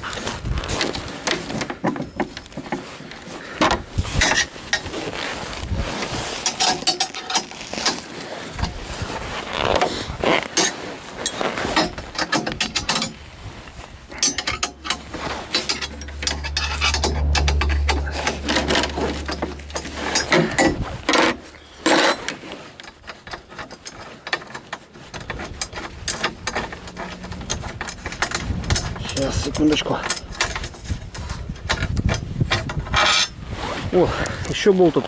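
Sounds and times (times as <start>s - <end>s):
gloves and clothing rustling: 0.0s - 16.6s
steady low rumble: 13.2s - 21.8s, 25.2s - 33.5s.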